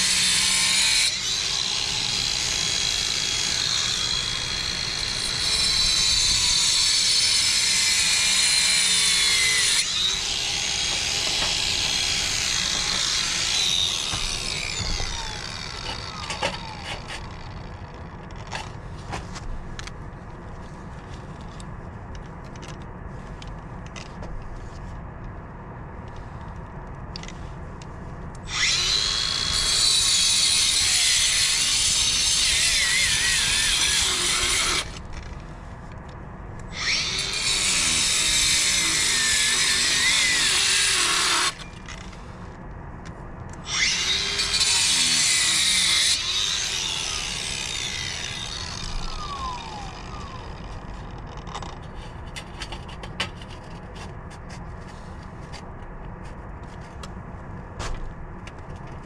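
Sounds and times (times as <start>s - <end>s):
angle grinder cutting mortar: 0.0s - 17.5s, 28.5s - 35.0s, 36.7s - 41.7s, 43.6s - 50.9s.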